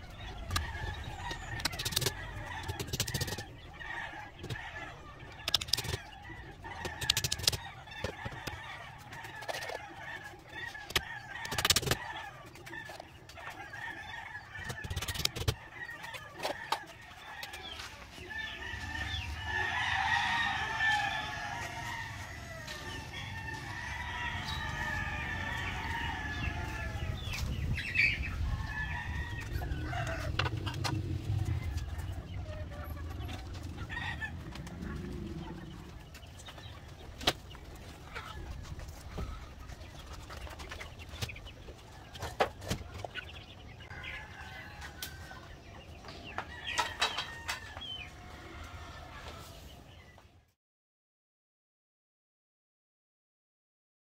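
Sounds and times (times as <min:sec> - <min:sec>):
chickens clucking: 0:00.0 - 0:50.4
rooster crowing: 0:18.3 - 0:27.3, 0:28.4 - 0:35.9.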